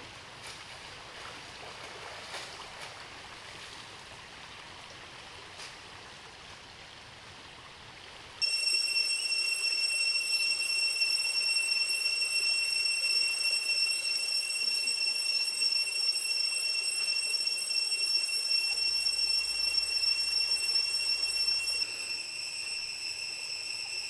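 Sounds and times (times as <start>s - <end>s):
stream running water: 0.0s - 24.0s
cicadas droning: 8.4s - 24.0s.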